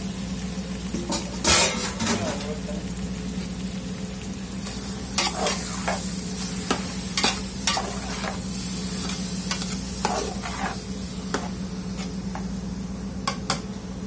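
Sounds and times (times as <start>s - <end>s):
beef sizzling in butter: 0.0s - 13.9s
steady low hum: 0.0s - 14.0s.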